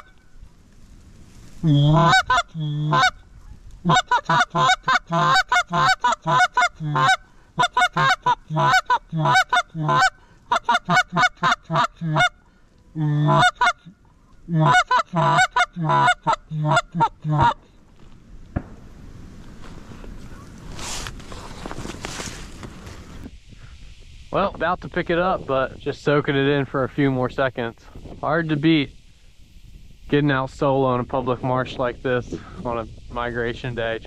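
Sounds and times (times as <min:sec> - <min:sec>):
goose call honks and clucks: 0:01.6 - 0:17.7.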